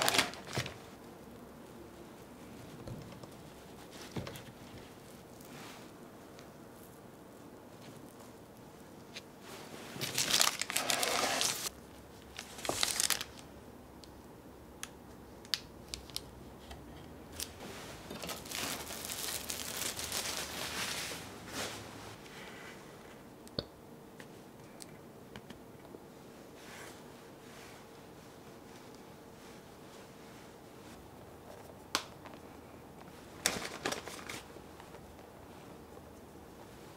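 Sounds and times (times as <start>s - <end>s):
parchment paper crinkling: 0.0s - 1.0s, 9.9s - 11.7s, 12.3s - 13.4s, 18.1s - 21.2s, 33.4s - 35.2s
soft rustle: 0.8s - 13.2s, 17.4s - 23.3s, 26.1s - 36.9s.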